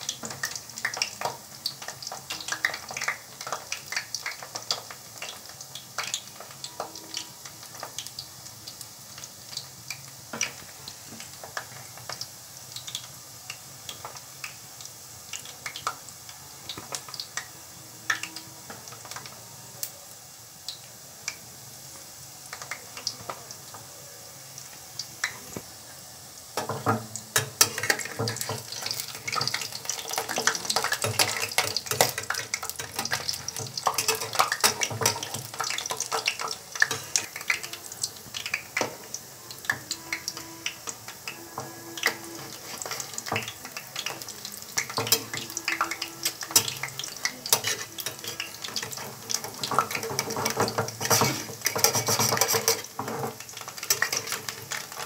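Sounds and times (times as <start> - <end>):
dough frying in hot oil: 0.0 - 55.0
spatula stirring in pan: 26.5 - 55.0.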